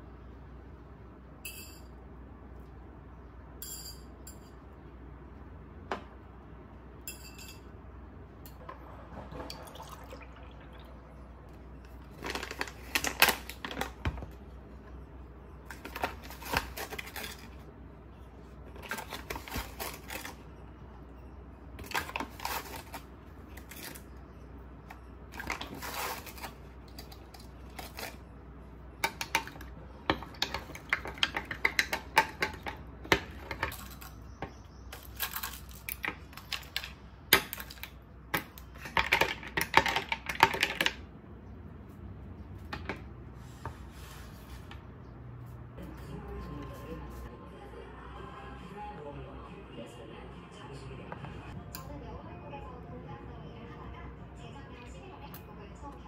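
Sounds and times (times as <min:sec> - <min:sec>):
low steady hum: 0:00.0 - 0:56.0
dishes clinking: 0:07.0 - 0:07.7.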